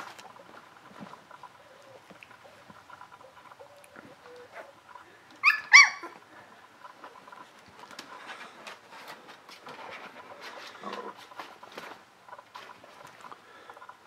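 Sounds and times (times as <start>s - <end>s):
puppy yelps: 5.4s - 6.2s.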